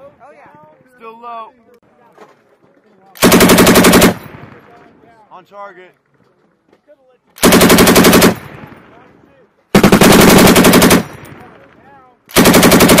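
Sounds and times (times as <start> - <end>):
machine gun bursts with echo: 3.2 - 4.4, 7.4 - 8.6, 9.7 - 11.4, 12.3 - 13.0.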